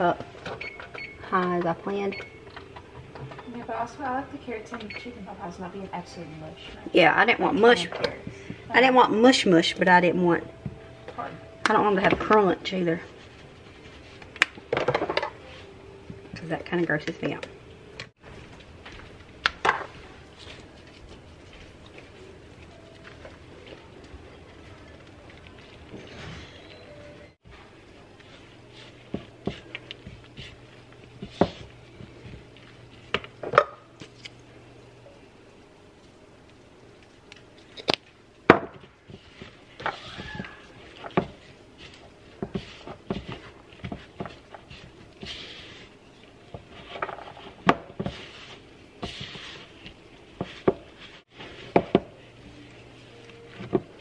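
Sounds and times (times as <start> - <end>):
spatula scraping in bowl: 40.7 - 51.8.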